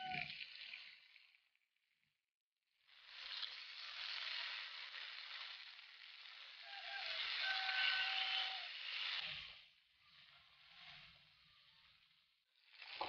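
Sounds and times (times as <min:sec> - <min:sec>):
chicken sizzling in oil: 0:02.8 - 0:13.0.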